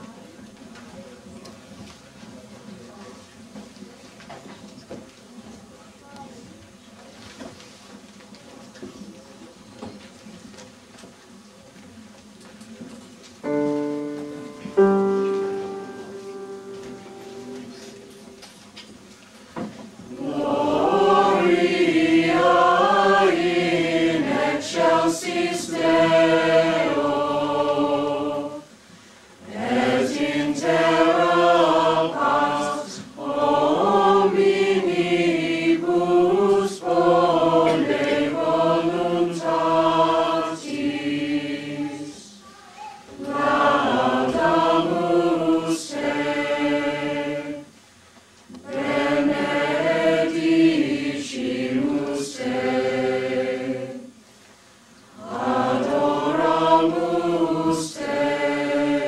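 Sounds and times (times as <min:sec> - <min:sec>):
choir singing in parts: 0:13.5 - 0:18.5, 0:19.6 - 0:42.4, 0:43.2 - 0:47.8, 0:48.6 - 0:54.2, 0:55.0 - 0:59.0.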